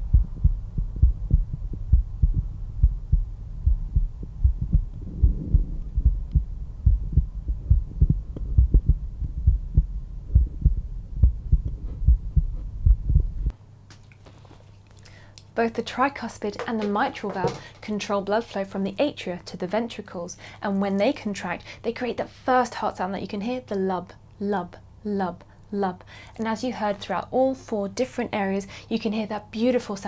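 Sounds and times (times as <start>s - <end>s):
heartbeat through stethoscope: 0.0s - 13.5s.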